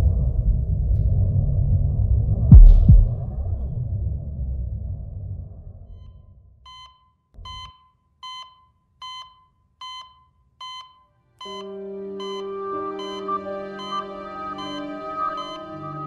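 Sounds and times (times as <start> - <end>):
low rumble: 0.0 - 6.2
short electronic beeps: 6.7 - 14.8, 15.4 - 15.6.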